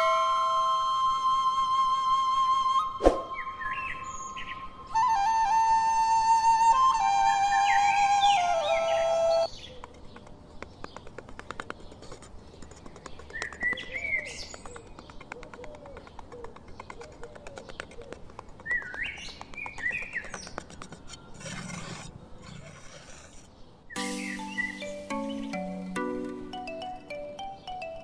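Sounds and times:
music: 0.0s - 9.5s, 24.0s - 28.0s
birds chirping: 7.4s - 28.0s
trowel scraping on gritty sand: 20.4s - 23.6s.

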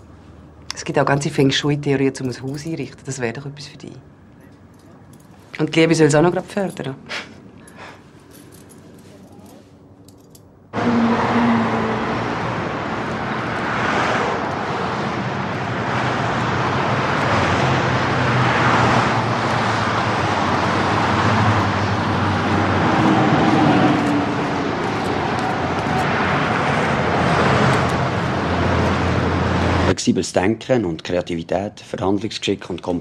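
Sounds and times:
road traffic passing: 4.0s - 30.0s.

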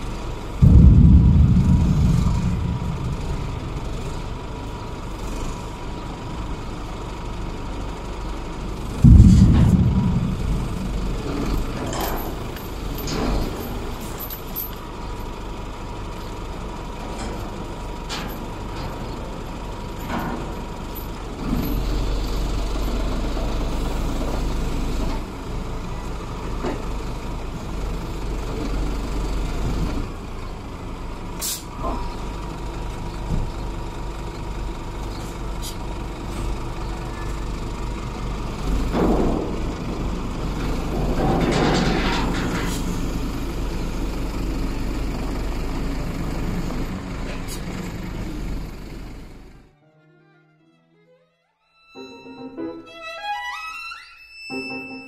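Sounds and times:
diesel engine running: 0.0s - 49.8s
loud metallic bang: 0.6s - 5.2s, 8.8s - 14.0s
hiss of air: 31.4s - 31.7s.

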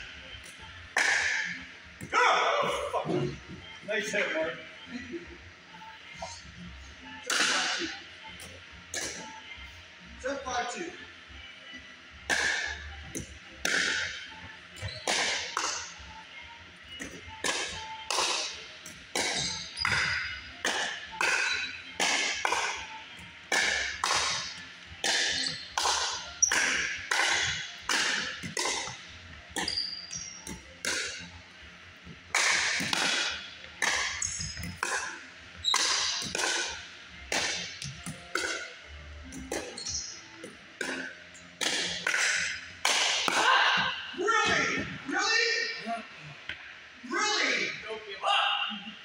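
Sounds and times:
ball bouncing: 12.3s - 14.1s, 14.8s - 15.8s, 17.0s - 22.9s, 23.5s - 24.4s, 25.0s - 31.3s, 32.3s - 43.5s.

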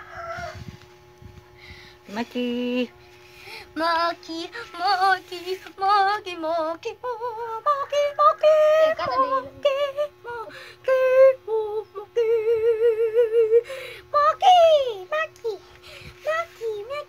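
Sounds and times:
faint steady hum: 0.0s - 17.0s
high voice singing wordlessly: 3.7s - 17.0s.

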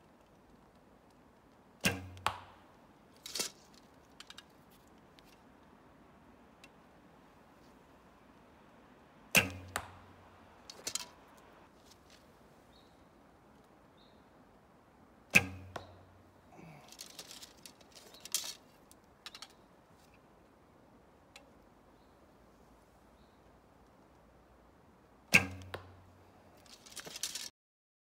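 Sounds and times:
bowstring snap and thrum: 1.8s - 2.6s, 9.3s - 11.1s, 15.3s - 16.1s, 25.3s - 26.1s
light clicks and rattles: 3.2s - 5.7s, 10.6s - 12.2s, 16.6s - 20.2s, 26.6s - 27.5s.

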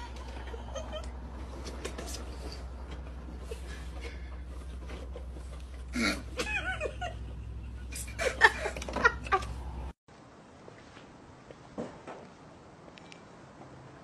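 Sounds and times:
person laughing: 6.0s - 9.6s.

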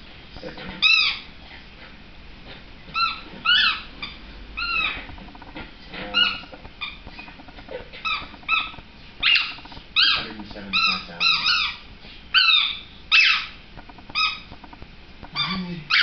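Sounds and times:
small dog whining: 2.9s - 5.1s, 8.0s - 14.6s, 15.3s - 16.0s.

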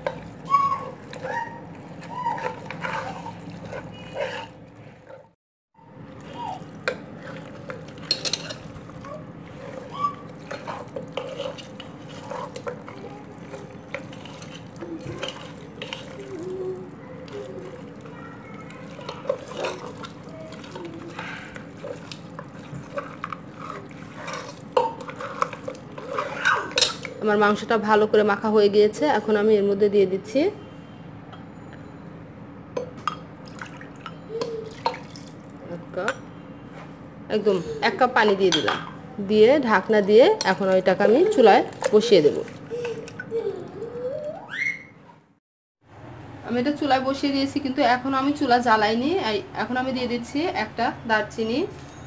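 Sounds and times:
wet squelching of meat kneaded by hand: 6.1s - 27.1s, 34.6s - 35.6s, 40.0s - 43.3s.

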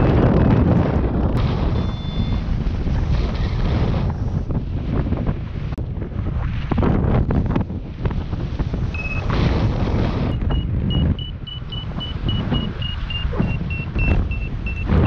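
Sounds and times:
wind buffeting microphone: 0.0s - 15.0s
short electronic tone: 1.7s - 2.4s, 9.0s - 9.3s, 10.3s - 15.0s
variometer beeping: 1.7s - 2.4s, 8.9s - 9.3s, 10.3s - 15.0s.

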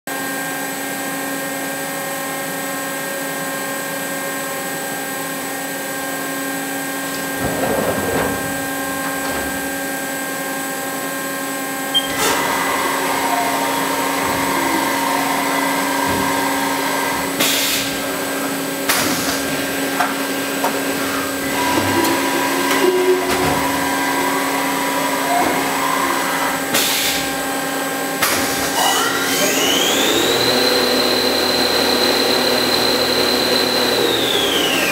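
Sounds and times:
enclosure door sliding open: 7.1s - 9.8s, 12.0s - 18.2s, 19.0s - 26.6s
lathe humming with fixed tones: 8.6s - 28.3s, 28.9s - 34.9s
spindle whine: 11.8s - 26.7s
clicks and servo whirs: 11.9s - 17.9s.

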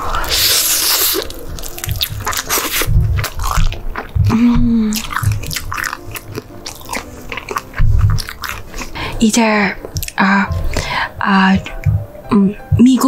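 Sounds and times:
crunchy biting of fried chicken: 0.1s - 4.2s, 4.8s - 9.0s
wet chewing clicks: 0.1s - 11.0s
person humming: 4.2s - 5.4s.

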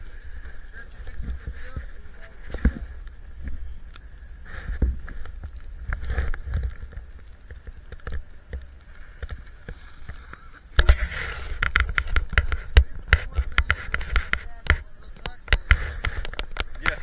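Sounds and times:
wind buffeting microphone: 0.0s - 17.0s
sharp irregular pops and clicks: 1.0s - 17.0s.

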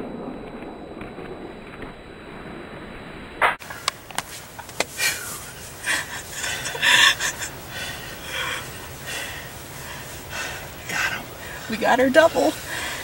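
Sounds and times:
heavy panting breaths: 4.9s - 13.0s.

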